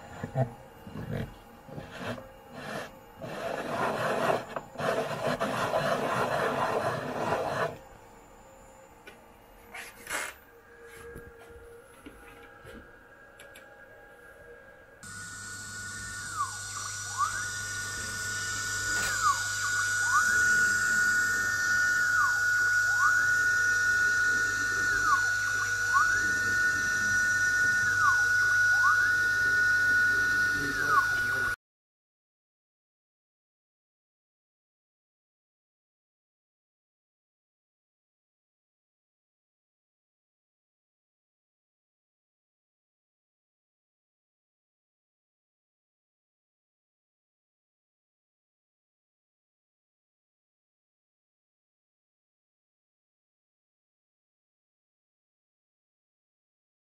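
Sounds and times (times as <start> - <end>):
stepper motors whining: 0.0 - 7.8, 15.0 - 31.6
hand brushing sawdust on wood: 1.7 - 7.8.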